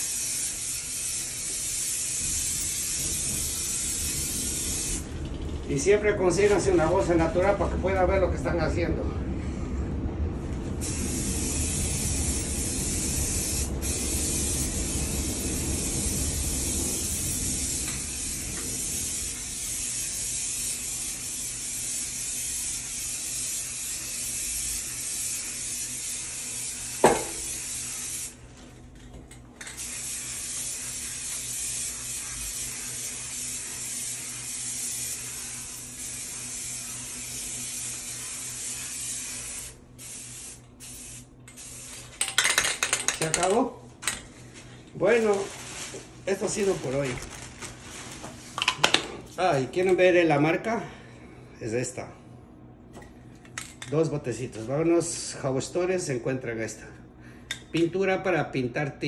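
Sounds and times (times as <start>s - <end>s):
aerosol can spraying hiss: 0.0s - 5.1s, 10.8s - 28.4s, 29.8s - 42.0s.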